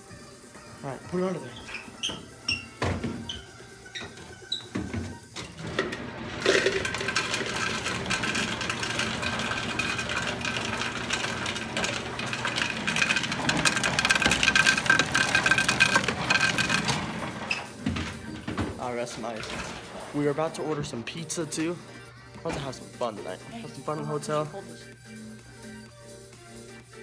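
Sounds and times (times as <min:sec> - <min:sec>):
ice dispenser motor whining: 0:03.9 - 0:24.2
ice clattering into container: 0:05.8 - 0:17.3.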